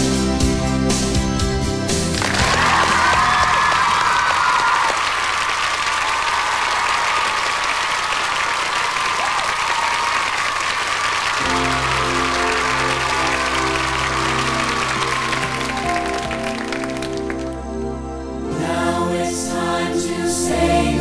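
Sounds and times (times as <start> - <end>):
music with steady bass line: 0.0 - 3.6, 11.4 - 19.2
audience applauding and cheering: 2.0 - 17.7.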